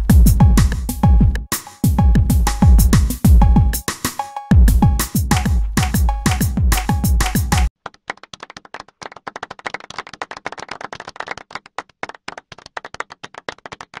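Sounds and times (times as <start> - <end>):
electronic music: 0.0 - 7.7
people clapping: 5.3 - 14.0.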